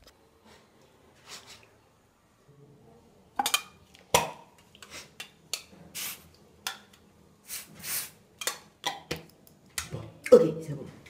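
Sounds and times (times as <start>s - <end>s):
aerosol spray hiss: 7.4s - 8.2s.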